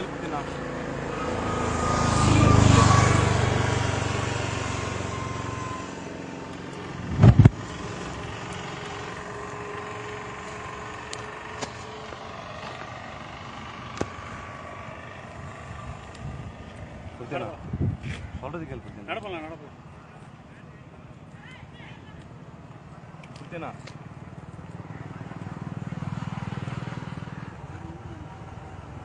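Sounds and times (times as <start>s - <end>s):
motor vehicle passing: 0.0s - 20.2s, 21.3s - 29.0s
loud low thump: 7.1s - 7.6s.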